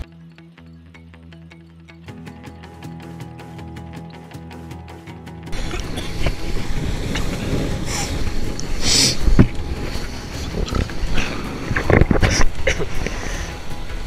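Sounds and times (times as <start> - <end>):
spray hissing: 5.5 - 14.0
water rushing and splashing: 5.5 - 14.0
wind buffeting microphone: 5.5 - 14.0.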